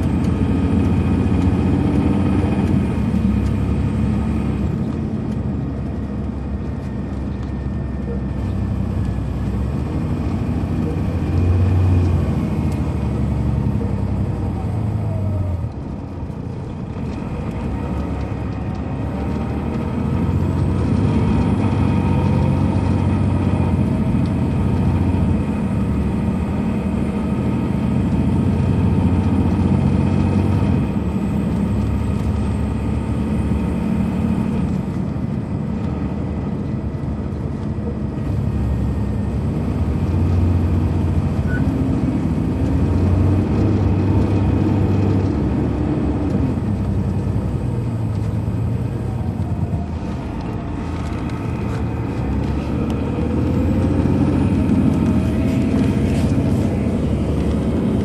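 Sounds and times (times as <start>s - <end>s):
bus engine running: 0.0s - 58.0s.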